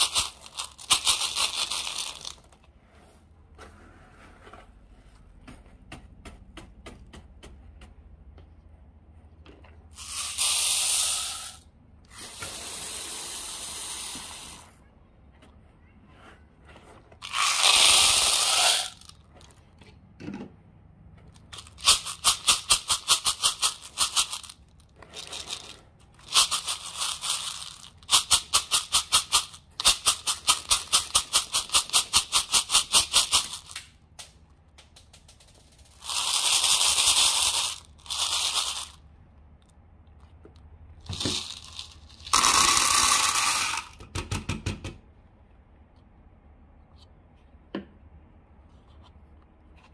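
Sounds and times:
water beads rattling in plastic: 0.0 - 2.7, 9.9 - 11.7, 17.2 - 19.6, 21.3 - 39.1, 41.0 - 44.0.

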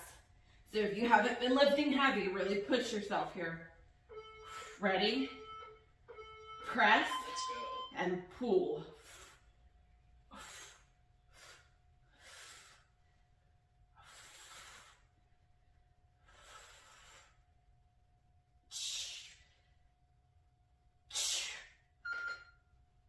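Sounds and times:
woman breathing hard: 10.2 - 13.0, 13.9 - 15.2, 16.2 - 17.5.

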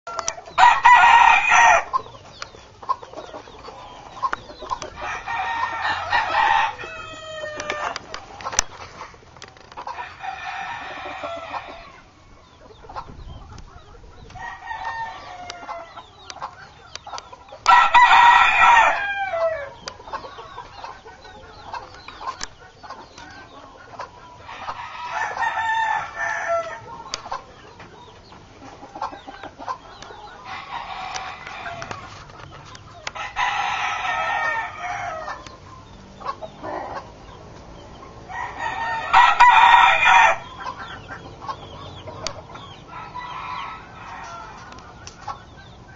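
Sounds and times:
rooster crowing: 0.1 - 2.0, 4.9 - 8.1, 9.9 - 12.2, 14.4 - 16.0, 17.6 - 19.8, 24.4 - 27.0, 30.4 - 32.0, 33.2 - 35.5, 38.3 - 40.6, 42.8 - 44.8.

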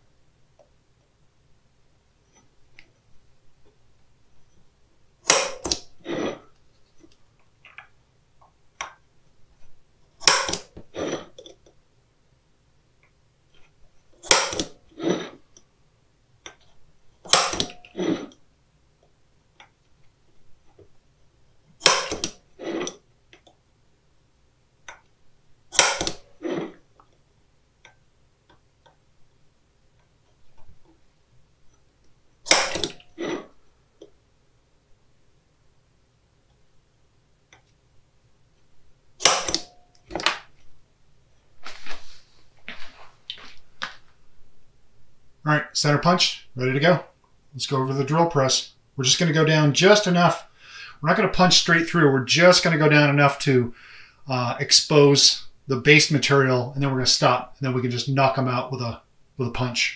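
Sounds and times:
center punch metallic strikes: 5.3 - 5.8, 10.2 - 10.8, 14.2 - 14.8, 17.3 - 17.9, 21.8 - 22.4, 25.7 - 26.3, 32.5 - 33.0, 39.2 - 39.8.

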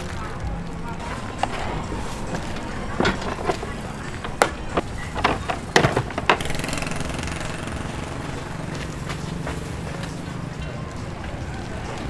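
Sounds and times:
hand truck rattling over gravel: 0.0 - 12.0
plastic tubs knocking on metal: 1.0 - 7.9.

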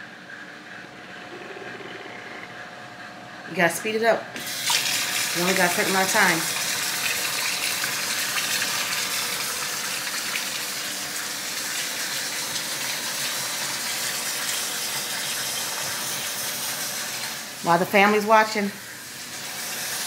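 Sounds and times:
faucet running into metal sink: 4.4 - 17.3.

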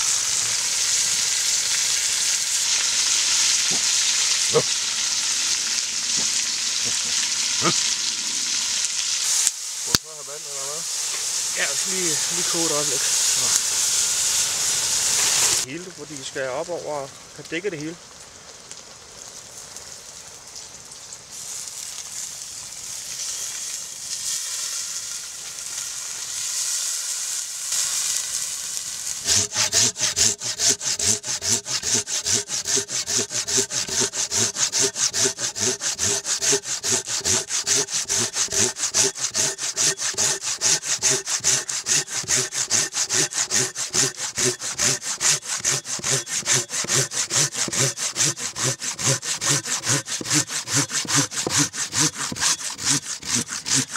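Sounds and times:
hand saw cutting a log: 0.8 - 4.7, 6.0 - 8.0, 9.9 - 14.0, 15.0 - 15.7, 29.2 - 53.9.

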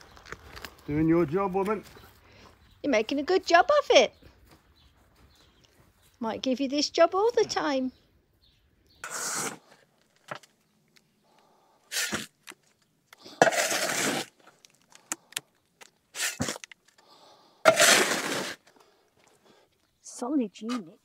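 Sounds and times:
hand tool striking concrete: 17.7 - 18.6.

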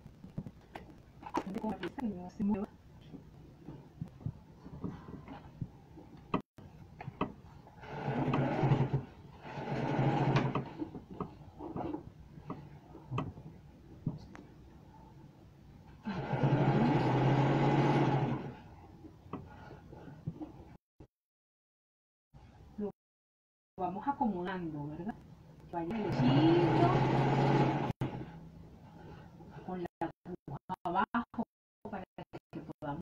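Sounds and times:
sewing machine stitching: 7.8 - 12.0, 16.0 - 18.7, 25.9 - 28.4.

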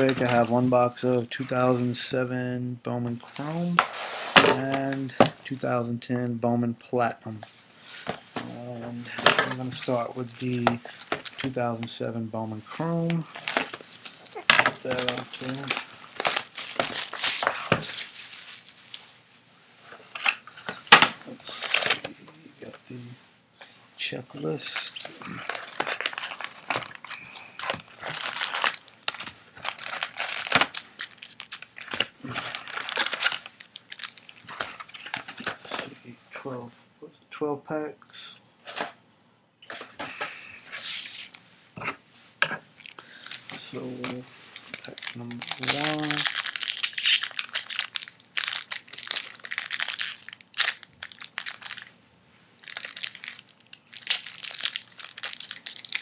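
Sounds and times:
wrappers crinkling: 9.1 - 11.6, 12.8 - 19.1, 24.5 - 36.0, 42.8 - 51.9, 52.6 - 56.0.

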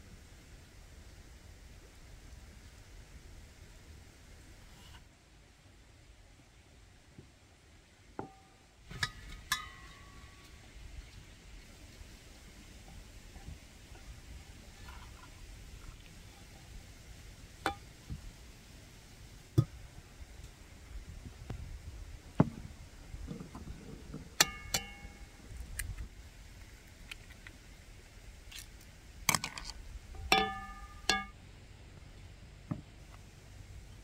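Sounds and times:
dishes clinking: 9.0 - 10.4, 24.4 - 25.2, 30.3 - 31.3.

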